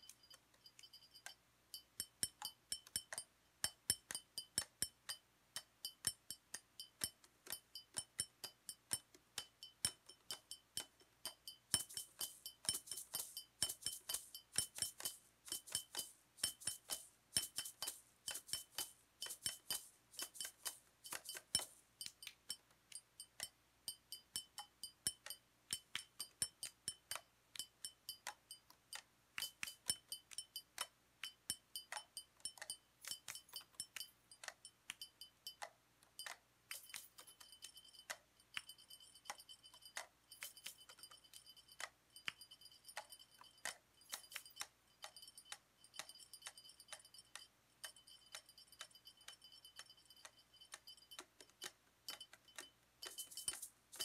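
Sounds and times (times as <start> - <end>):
hard objects clinking: 52.1 - 54.0.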